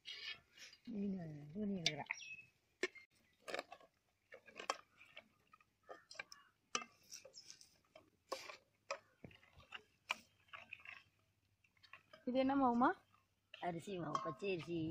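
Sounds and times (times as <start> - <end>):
ladle scraping metal bowl: 0.0 - 0.9, 4.6 - 14.9.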